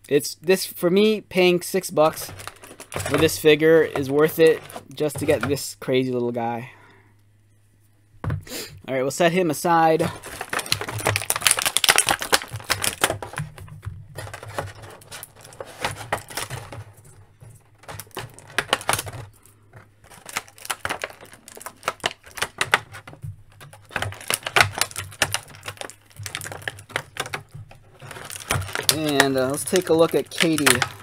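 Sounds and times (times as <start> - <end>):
hard plastic parts clicking: 2.0 - 5.6, 10.0 - 31.0
plastic packaging crinkling: 2.0 - 5.6, 10.0 - 31.0.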